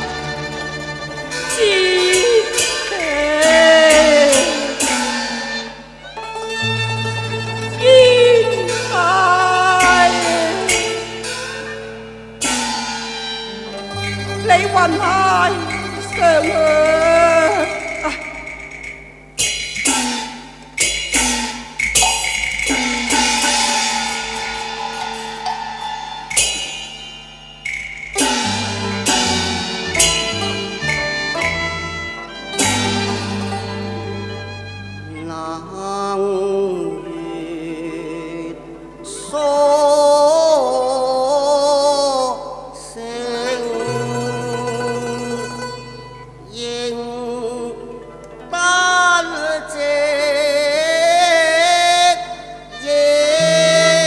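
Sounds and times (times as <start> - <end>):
bowed and plucked strings ensemble: 0.0 - 26.8, 28.0 - 54.0
held instrumental tones: 0.0 - 41.3, 42.2 - 54.0
opera duet singing with vibrato: 1.4 - 5.9, 7.7 - 11.2, 14.4 - 18.6, 35.1 - 45.4, 46.5 - 54.0
percussion strikes with ringing decay: 8.7 - 34.2.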